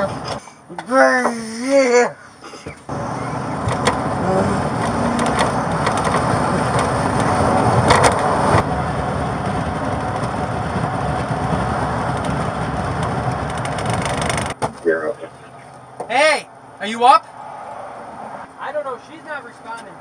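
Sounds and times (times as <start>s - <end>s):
road noise inside moving car: 0.0s - 20.0s
rattling: 2.8s - 14.8s.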